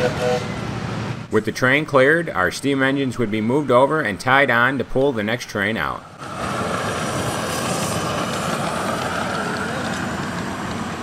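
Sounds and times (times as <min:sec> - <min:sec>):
steam locomotive hissing rattle: 0:06.2 - 0:11.0.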